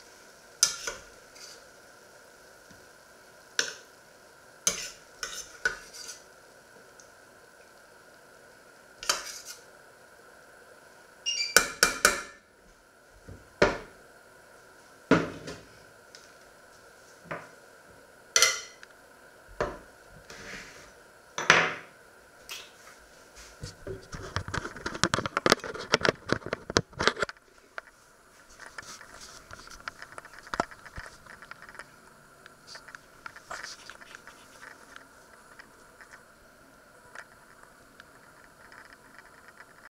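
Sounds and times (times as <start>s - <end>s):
kitchenware clattering: 18.4s - 18.8s.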